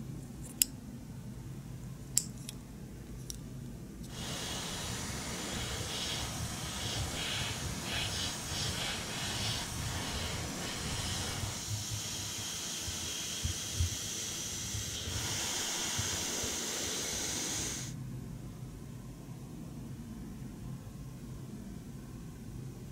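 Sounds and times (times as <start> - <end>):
airbrush spraying hiss: 4.1 - 18.0.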